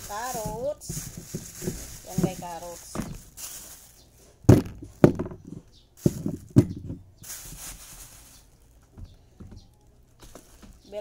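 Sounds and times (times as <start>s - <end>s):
carrots knocking on a table: 0.3s - 3.2s, 4.5s - 7.1s.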